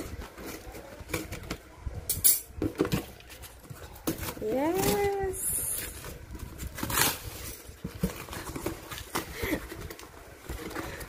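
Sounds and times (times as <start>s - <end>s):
cardboard box tearing: 4.0s - 11.0s.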